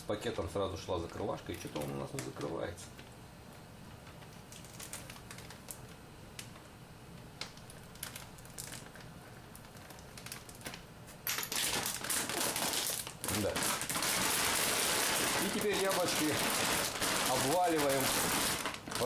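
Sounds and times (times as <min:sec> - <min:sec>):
plastic bag crinkling: 0:04.2 - 0:06.5, 0:07.4 - 0:10.8, 0:11.4 - 0:19.0.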